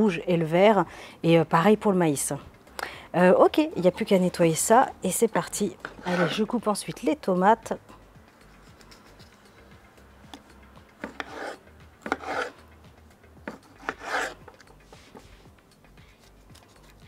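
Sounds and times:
knife rasping through tomato: 6.0s - 6.6s, 11.0s - 12.6s, 13.5s - 15.2s.

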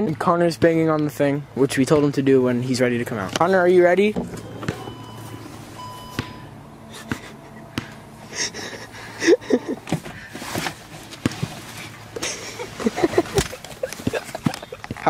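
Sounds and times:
person gasping: 7.7s - 10.4s.

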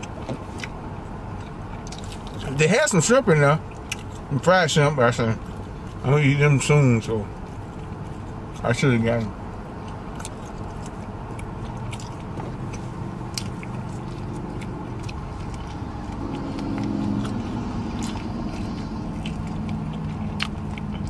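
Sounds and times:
chewing meat off a bone: 0.0s - 2.6s, 3.6s - 4.4s, 5.1s - 21.0s
steady low rumble: 0.0s - 21.0s
low hum: 9.3s - 21.0s
wet smacking clicks: 9.9s - 21.0s.

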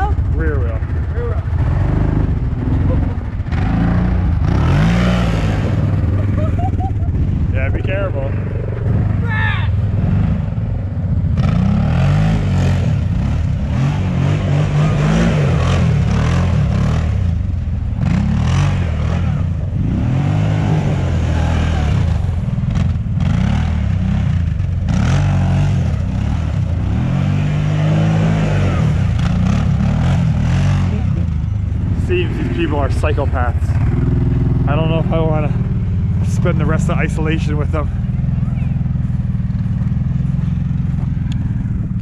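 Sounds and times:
atv engine revving: 0.0s - 42.0s.

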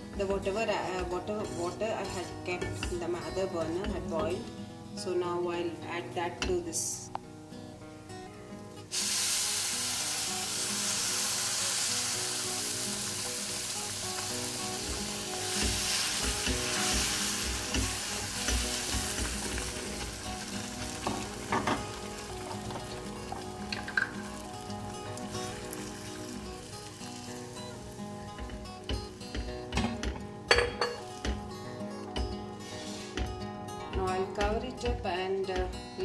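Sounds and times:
water sizzling in hot pan: 8.7s - 33.2s
spoon knocking against pan: 28.4s - 31.5s.

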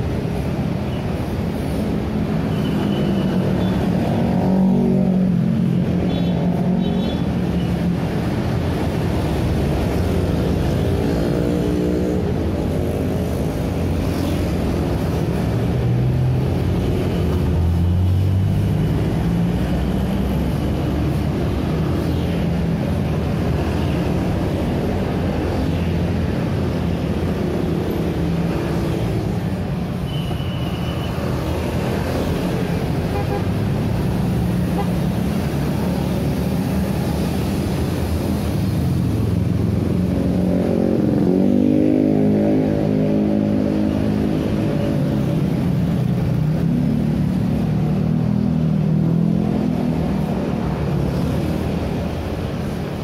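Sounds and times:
road traffic passing: 0.0s - 53.0s.

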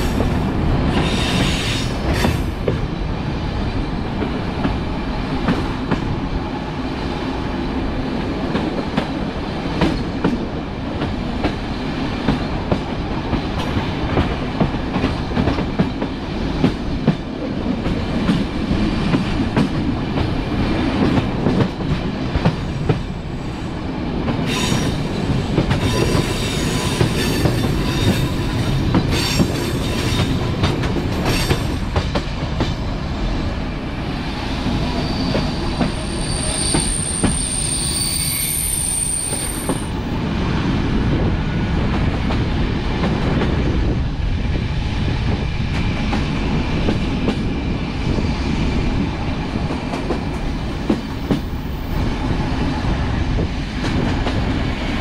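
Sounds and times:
train wheels rumbling on rail: 0.0s - 55.0s
metallic wheel squeal: 34.9s - 39.9s.

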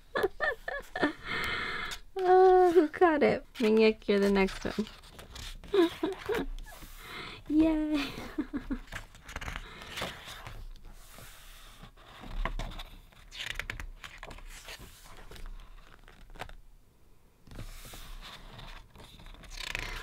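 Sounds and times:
book pages turning: 3.5s - 7.1s, 8.4s - 16.6s, 17.5s - 20.0s.

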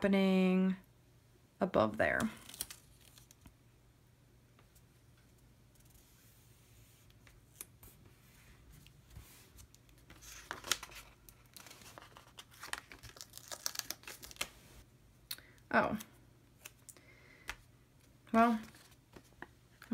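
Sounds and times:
paper sticker sheet crackling: 2.3s - 3.5s, 9.5s - 14.6s.

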